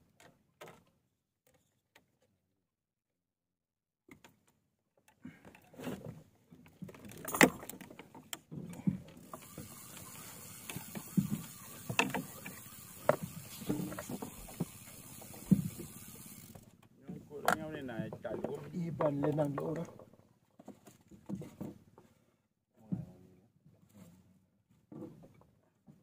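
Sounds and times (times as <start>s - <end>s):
fishing gear knocks and clicks: 5.0s - 21.8s
steady hiss: 9.4s - 16.6s.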